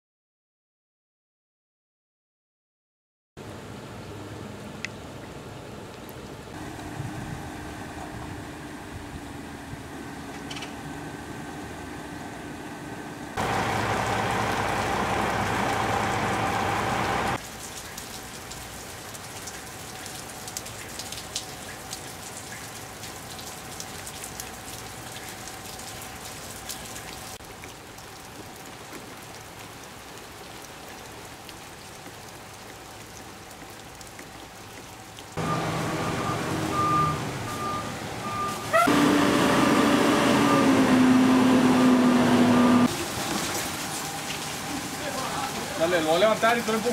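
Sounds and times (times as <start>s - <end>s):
truck engine running: 6.6s - 17.4s, 35.4s - 46.6s
rain pattering: 13.4s - 38.8s, 42.8s - 46.9s
reversing alarm beeping: 35.4s - 40.8s.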